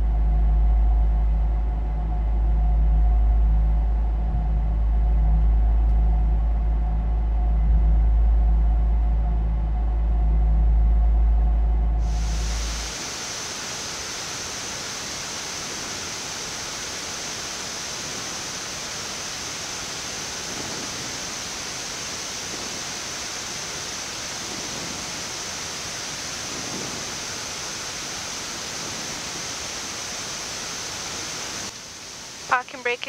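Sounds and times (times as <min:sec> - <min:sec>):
air flow hiss: 0:12.0 - 0:33.0.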